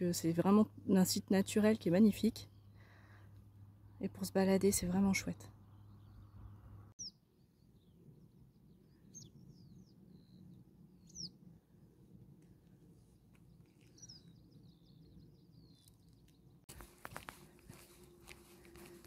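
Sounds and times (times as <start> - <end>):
birds chirping: 5.1 - 11.4, 13.3 - 19.0.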